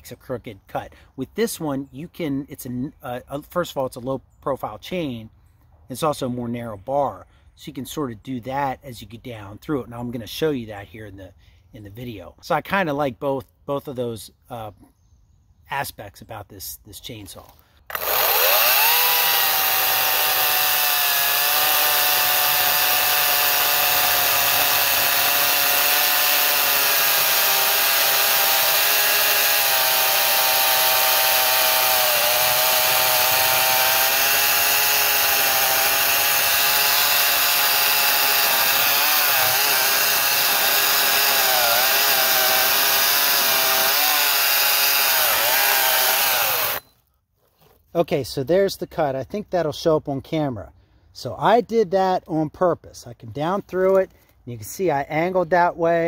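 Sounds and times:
chainsaw cutting through log: 17.9 - 46.9.

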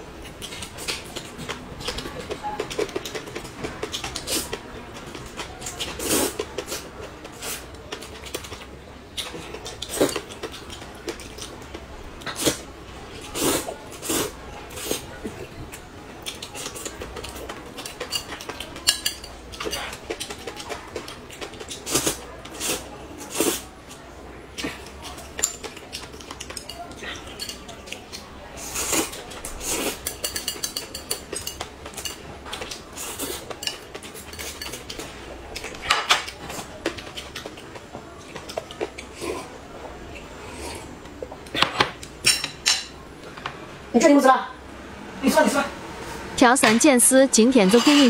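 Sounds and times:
person slurping noodles: 6.0 - 7.6, 13.4 - 15.1, 21.8 - 23.7, 28.6 - 30.0, 39.1 - 39.6, 40.4 - 40.9.

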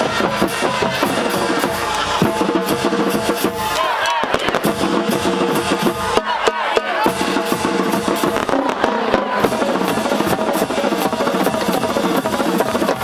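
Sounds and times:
marching band brass and drums: 0.0 - 13.0
fireworks crackling and popping: 4.2 - 4.8, 8.2 - 11.1.

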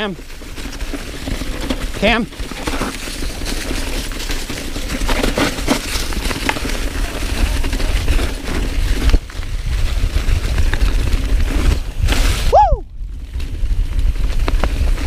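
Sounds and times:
bike tyres crunching over leaves: 0.0 - 15.0
wind on microphone: 6.8 - 15.0.

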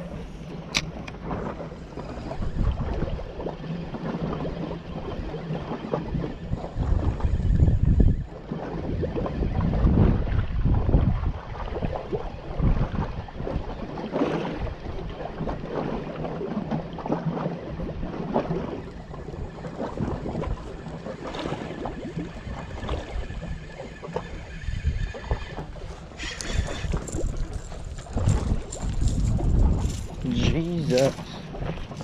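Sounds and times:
wind buffeting microphone: 0.0 - 32.0
waves lapping against a wall: 8.3 - 32.0
fishing reel winding: 22.2 - 29.1.

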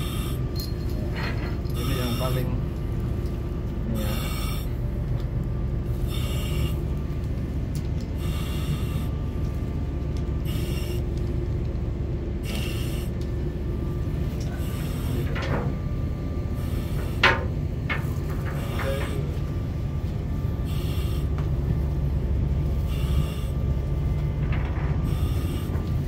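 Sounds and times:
steady low rumble: 0.0 - 26.0
air regulator hiss: 4.0 - 4.8, 5.9 - 6.8, 8.2 - 9.2, 12.4 - 13.1.

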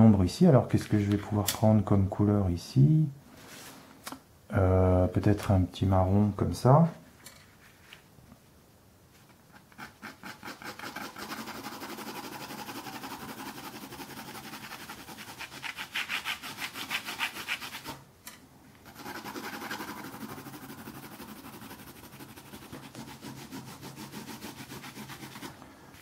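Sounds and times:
pencil scratching on paper: 9.5 - 18.0, 18.8 - 25.5.

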